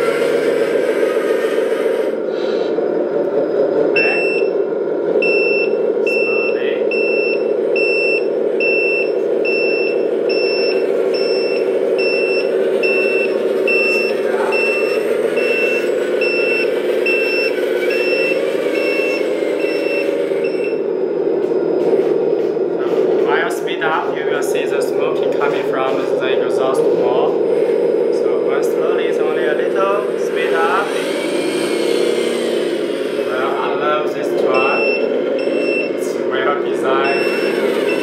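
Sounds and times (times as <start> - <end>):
simulated diesel engine running: 0.0 - 38.0
reversing beeper beeps: 2.9 - 27.3, 33.3 - 38.0.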